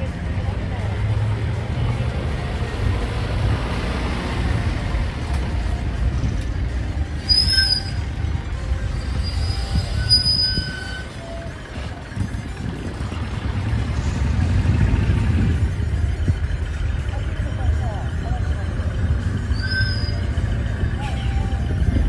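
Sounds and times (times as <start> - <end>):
diesel truck engine rumble: 0.0 - 22.0
short high-pitched squeals: 7.2 - 8.2, 9.1 - 11.5, 19.5 - 20.4.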